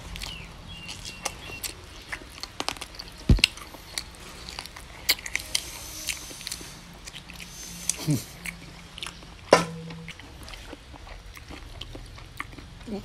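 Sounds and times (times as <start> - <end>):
man eating meat off bone: 0.0 - 13.0.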